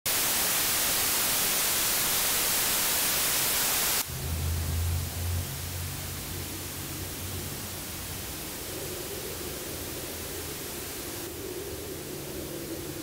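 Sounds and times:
television static hiss: 0:00.1 - 0:04.1, 0:05.0 - 0:13.0
low electrical hum: 0:00.5 - 0:13.0.

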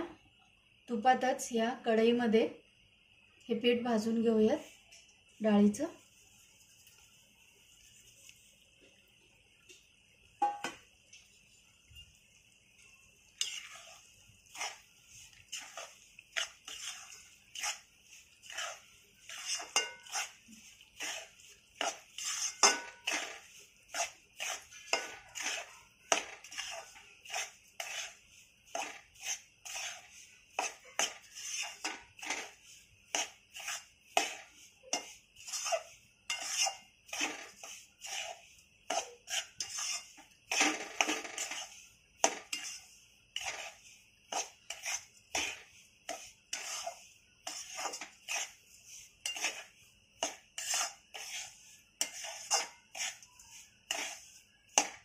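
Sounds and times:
spatula scraping a pan: 0:12.8 - 0:55.0.

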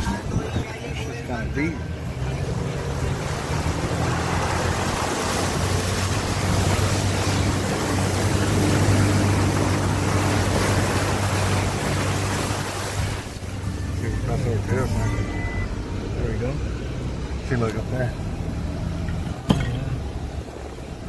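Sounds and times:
low engine drone: 0:00.0 - 0:21.0
water rushing and splashing: 0:00.0 - 0:21.0.

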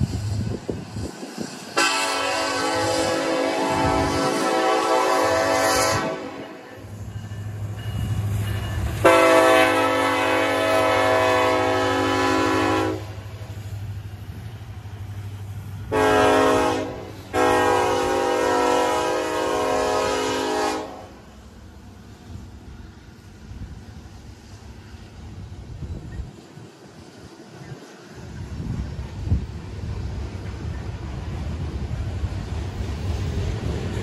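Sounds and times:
train air horn blasts: 0:01.7 - 0:06.9, 0:09.0 - 0:13.3, 0:15.9 - 0:21.3.

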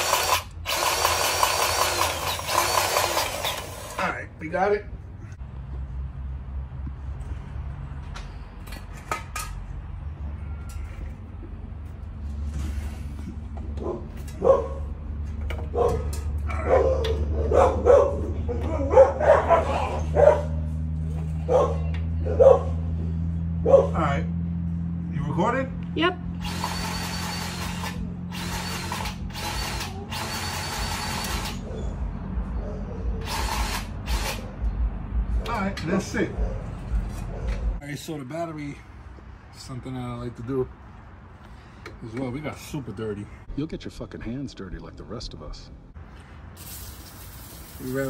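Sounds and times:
grease gun motor running: 0:00.0 - 0:04.1, 0:26.4 - 0:31.6, 0:33.2 - 0:34.4
dog barking: 0:13.8 - 0:14.9, 0:15.7 - 0:20.6, 0:21.4 - 0:22.9, 0:23.6 - 0:24.0.

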